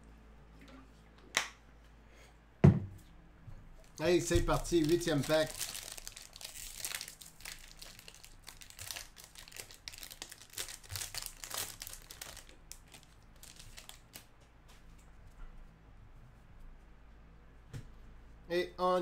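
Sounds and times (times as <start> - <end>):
foil wrapper crinkling: 3.8 - 14.3.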